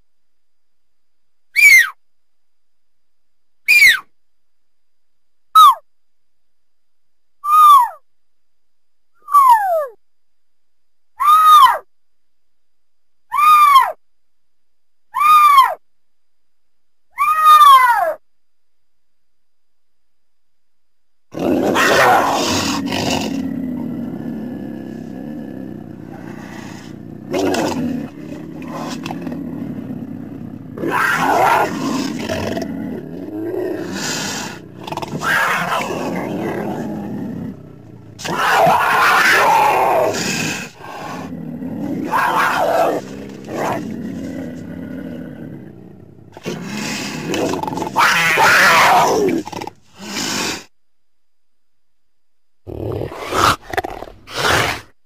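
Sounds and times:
cougar harsh calls: 0:01.6 - 0:02.0, 0:03.7 - 0:04.1, 0:07.4 - 0:08.0, 0:11.2 - 0:11.9, 0:13.3 - 0:14.0, 0:15.1 - 0:15.8, 0:17.2 - 0:18.2, 0:21.4 - 0:50.7, 0:52.7 - 0:54.9.

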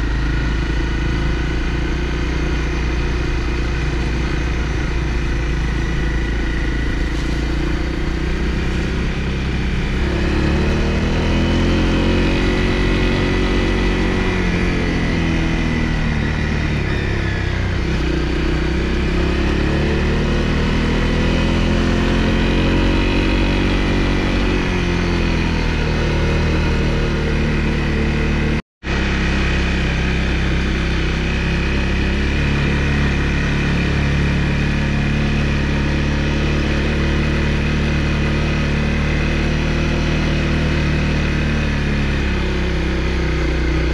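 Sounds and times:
low rumble: 0:00.0 - 0:19.4
motorcycle engine revving: 0:00.0 - 0:43.9.

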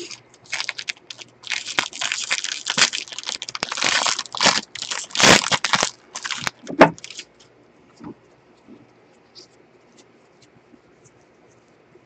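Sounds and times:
foil wrapper crinkling: 0:00.0 - 0:07.4.

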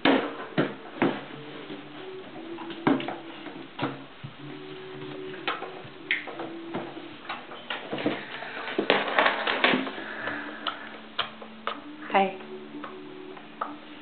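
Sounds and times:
plastic cooler knocked on wooden floor: 0:00.0 - 0:01.3.

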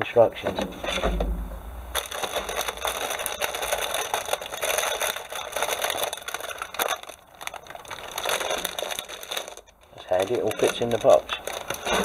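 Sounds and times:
cardboard scraping: 0:00.4 - 0:06.8
sharp knock: 0:00.6 - 0:02.0
plastic bags crinkling: 0:00.6 - 0:12.0.

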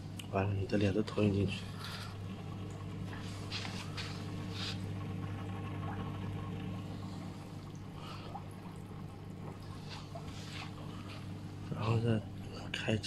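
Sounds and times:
filter pump humming: 0:00.0 - 0:13.0
water trickling and swirling: 0:01.5 - 0:12.7.

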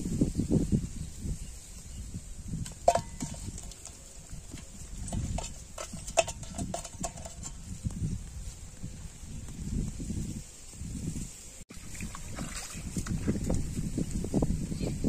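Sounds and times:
fish knocking against metal bucket: 0:02.6 - 0:07.7.

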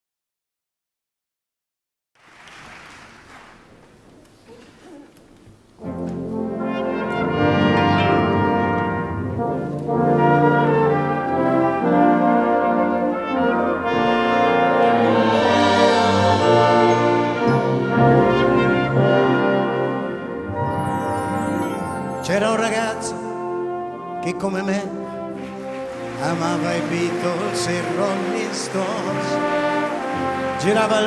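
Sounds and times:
faint background noise: 0:02.2 - 0:10.2
wind band with brass playing: 0:05.8 - 0:31.0.

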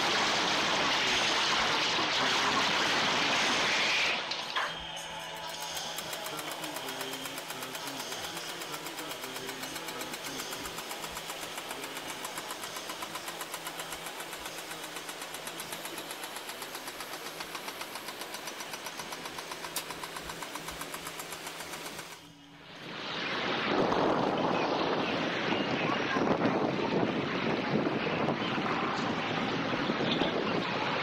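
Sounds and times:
crane diesel engine running: 0:00.0 - 0:23.0
wind noise on microphone: 0:22.9 - 0:31.0.

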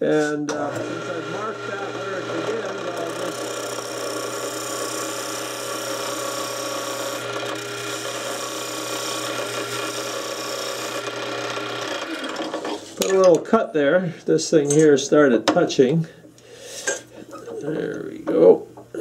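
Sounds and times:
tool scraping wood: 0:00.2 - 0:13.4
lathe motor humming: 0:00.5 - 0:13.1.

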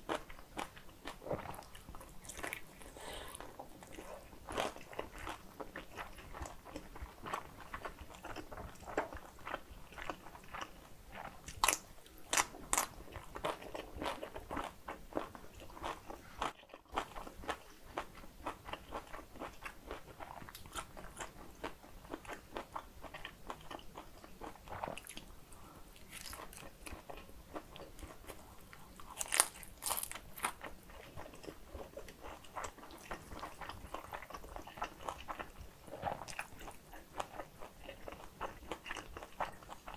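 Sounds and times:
food crunching: 0:00.1 - 0:25.3, 0:25.9 - 0:39.9
close biting and chewing: 0:26.0 - 0:39.9.

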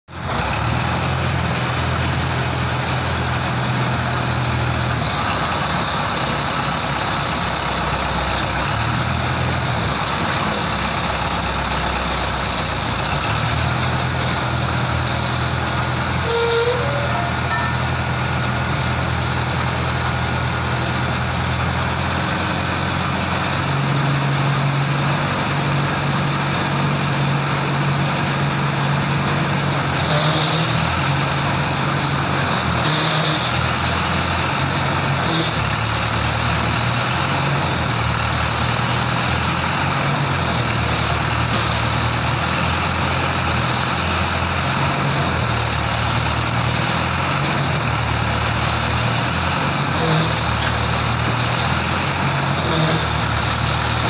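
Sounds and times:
winch engine humming: 0:00.2 - 0:21.7.

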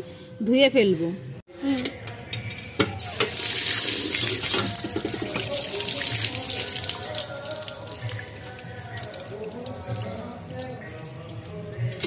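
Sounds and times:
water splashing onto metal plate: 0:03.0 - 0:12.0.

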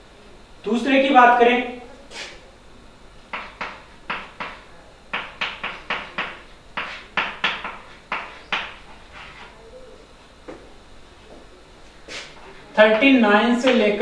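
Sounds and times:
chalk tapping and scraping: 0:02.1 - 0:02.4, 0:03.3 - 0:09.6, 0:12.1 - 0:13.1.

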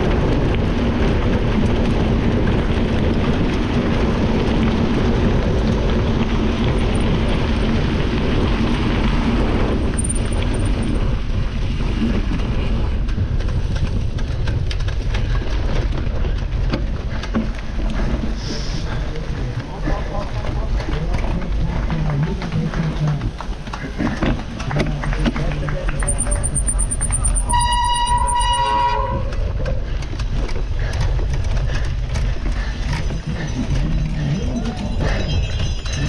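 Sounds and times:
wind on microphone: 0:00.0 - 0:22.6
bike rattling over bumpy grass: 0:00.0 - 0:36.0
bike tyres on gravel: 0:00.0 - 0:36.0.

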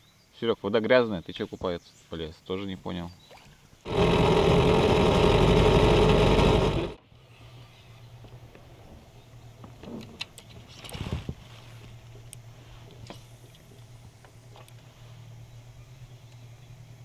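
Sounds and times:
low hum: 0:03.9 - 0:07.0.

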